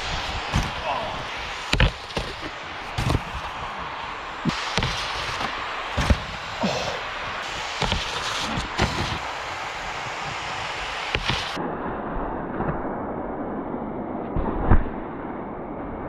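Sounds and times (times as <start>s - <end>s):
snowboard scraping over snow: 0.0s - 11.6s
board knocking on rail: 4.4s - 9.2s.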